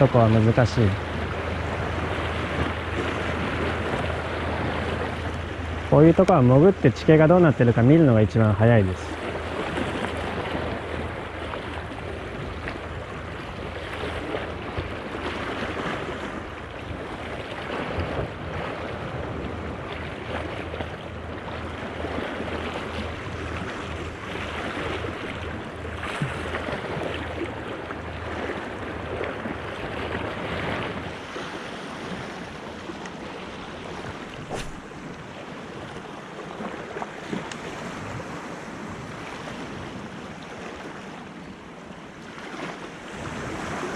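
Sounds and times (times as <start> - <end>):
wind rumbling on microphone: 0.0 - 40.9
waves washing against rocks: 17.0 - 40.1, 42.4 - 43.9
sharp click: 34.4 - 34.9.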